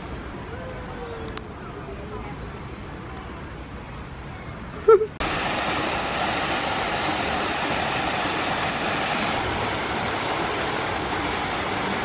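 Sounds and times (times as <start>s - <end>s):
water rushing from small waterfall: 5.2s - 12.0s.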